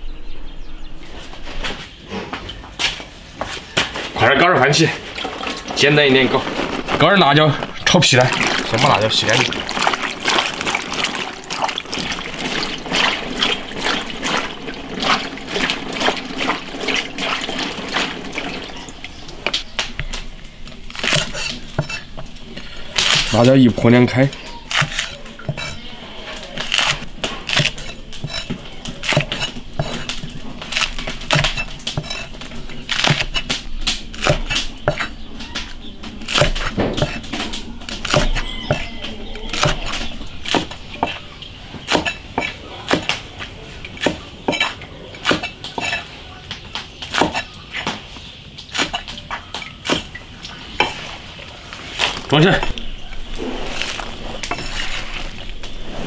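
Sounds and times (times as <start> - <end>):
cleaver chopping on wooden block: 36.3 - 37.3, 38.0 - 38.9, 47.1 - 48.0.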